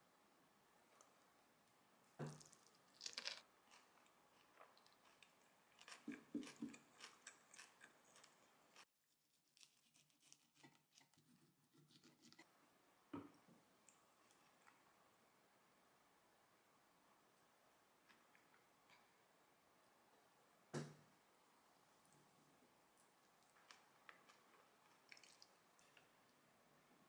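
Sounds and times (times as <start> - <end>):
crisp crackles: 2.3 - 10.5
sandwich crunching and chewing: 2.4 - 11.0, 23.5 - 26.1.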